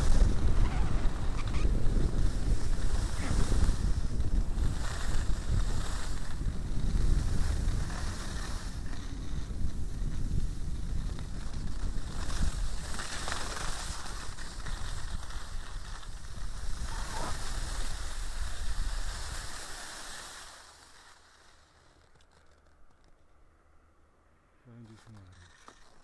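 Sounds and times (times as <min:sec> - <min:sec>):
wind buffeting microphone: 0:00.0 - 0:19.5.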